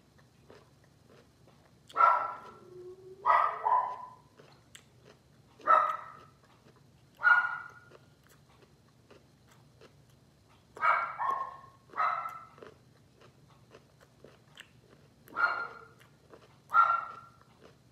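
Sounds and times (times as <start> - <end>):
dog barking: 1.9 - 2.6, 3.2 - 4.4, 5.6 - 6.3, 7.2 - 8.0, 10.8 - 12.7, 15.3 - 16.0, 16.7 - 17.4.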